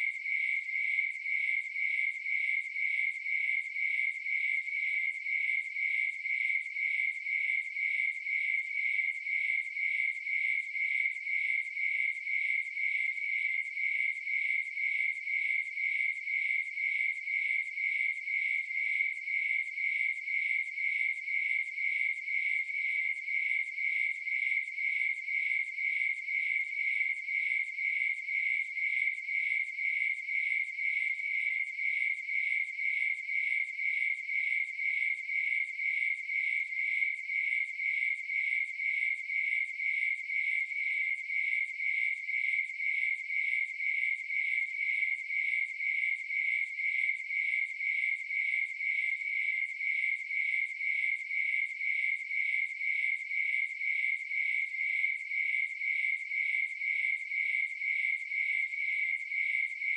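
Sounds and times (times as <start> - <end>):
crickets chirping: 0.0 - 59.9.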